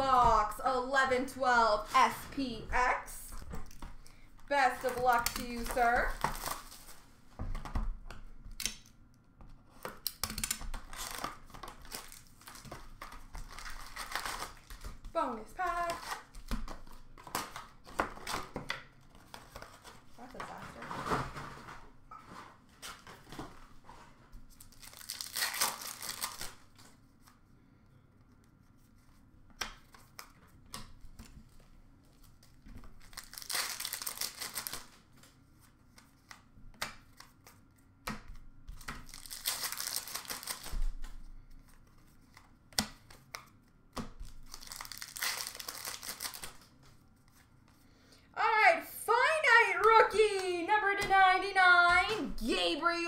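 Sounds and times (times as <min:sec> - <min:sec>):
wrappers tearing and crinkling: 0:04.5 - 0:07.0, 0:10.0 - 0:15.0, 0:15.6 - 0:18.4, 0:24.5 - 0:26.9, 0:32.2 - 0:35.2, 0:38.8 - 0:41.1, 0:44.2 - 0:46.8
cards clicking and tapping: 0:29.5 - 0:31.7, 0:35.9 - 0:40.8, 0:41.6 - 0:46.6.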